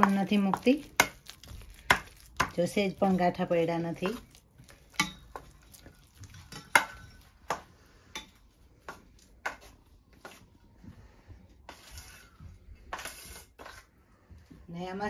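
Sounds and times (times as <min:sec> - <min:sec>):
scraping in metal bowl: 0:11.7 - 0:13.9.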